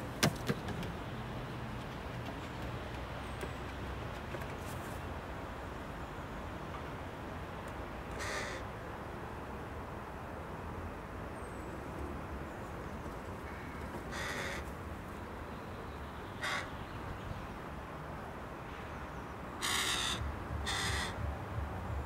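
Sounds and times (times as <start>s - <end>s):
crow cawing: 8.2s - 8.7s, 13.5s - 14.7s, 16.4s - 16.7s, 19.6s - 21.2s.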